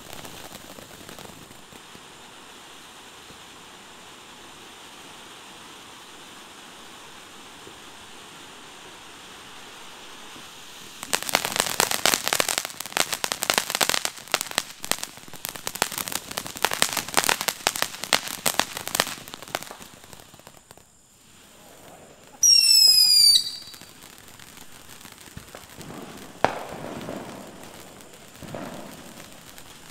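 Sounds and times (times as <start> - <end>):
firework hissing and crackling: 0.0 - 29.9
high firework whistle: 21.2 - 29.9.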